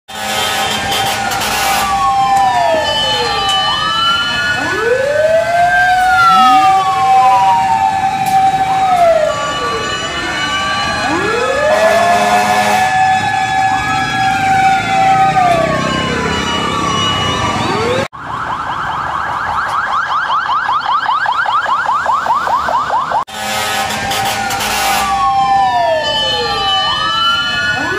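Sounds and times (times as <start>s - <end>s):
fire truck sirens wailing: 0.1s - 27.9s.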